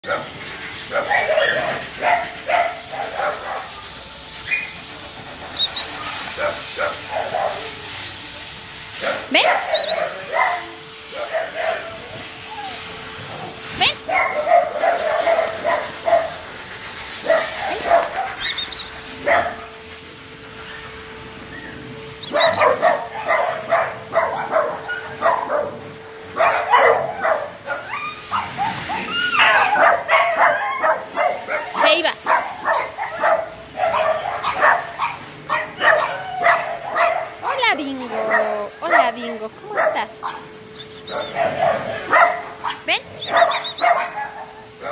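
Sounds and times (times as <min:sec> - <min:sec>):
dogs barking: 0:00.0 - 0:07.8, 0:08.9 - 0:16.5, 0:17.2 - 0:19.8, 0:21.6 - 0:44.9
dog high rising cries: 0:09.3 - 0:13.2, 0:20.6 - 0:44.9.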